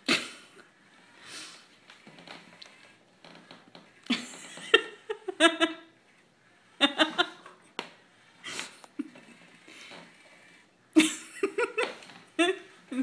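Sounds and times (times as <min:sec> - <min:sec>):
person laughing: 0:04.1 - 0:05.9, 0:06.8 - 0:07.5, 0:11.0 - 0:13.0.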